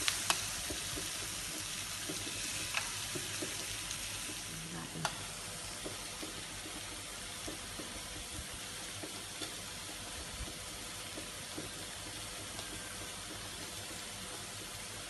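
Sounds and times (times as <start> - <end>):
meat sizzling on a grill: 0.0 - 15.0.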